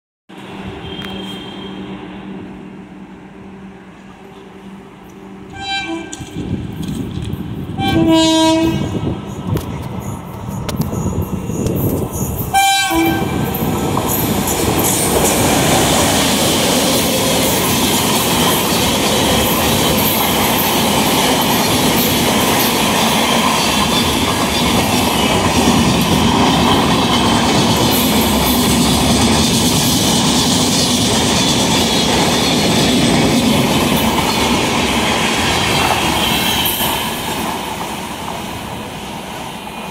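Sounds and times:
train horn: 0.5s - 2.1s, 5.5s - 6.4s, 7.8s - 9.0s, 12.5s - 13.6s
train wheels clattering on rails: 5.1s - 8.1s, 8.7s - 39.9s.

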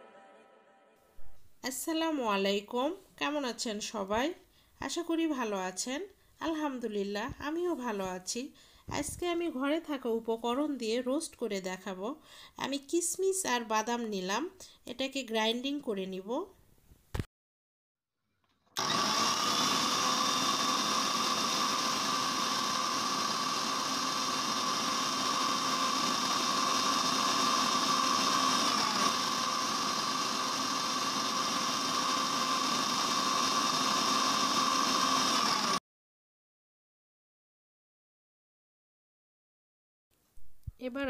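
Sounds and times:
mixer grinder motor whining: 18.8s - 35.8s.

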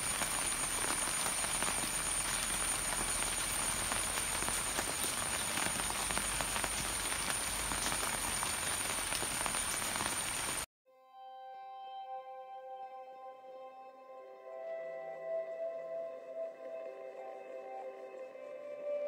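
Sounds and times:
rain falling on foliage: 0.0s - 10.7s
ambient music with singing bowl tones: 10.9s - 19.0s.

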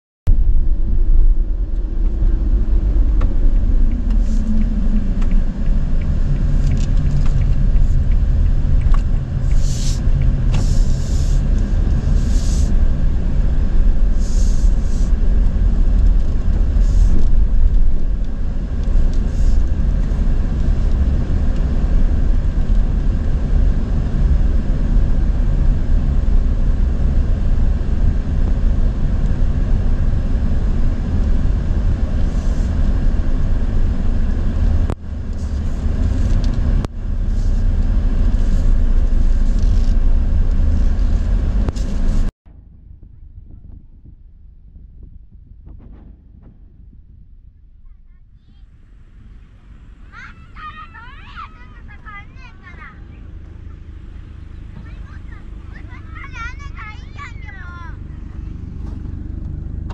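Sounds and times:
van road and engine rumble: 0.3s - 59.9s
brief hisses: 9.5s - 10.0s, 10.6s - 11.4s, 12.1s - 12.7s, 14.2s - 15.2s.

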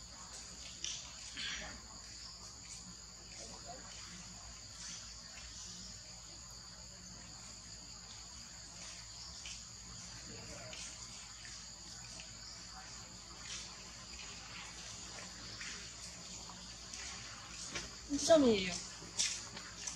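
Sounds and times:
insect chorus droning: 0.0s - 19.9s.

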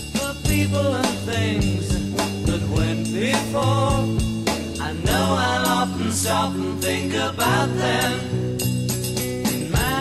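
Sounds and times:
background music with beat: 0.0s - 10.0s.

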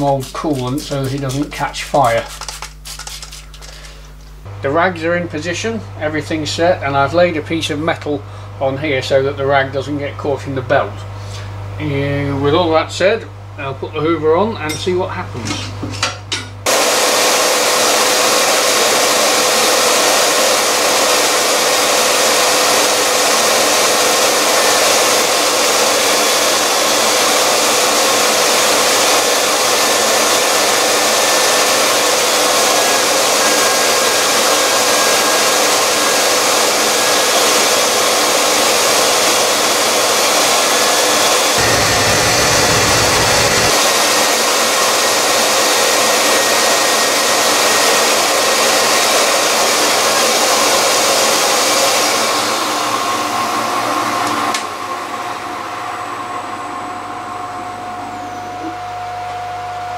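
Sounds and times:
shop vacuum rushing: 16.6s - 58.8s
grinder wheel whirring: 40.2s - 44.1s
low hum: 41.6s - 43.9s.

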